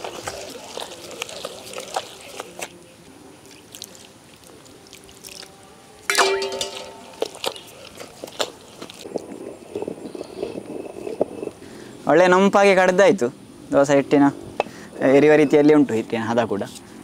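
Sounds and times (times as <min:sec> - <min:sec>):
stone pestle grinding wet batter: 0:00.0 - 0:02.7.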